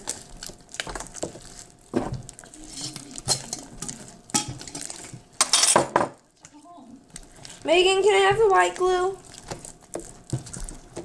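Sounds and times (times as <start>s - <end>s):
slime squelching and clicking: 8.3s - 11.0s.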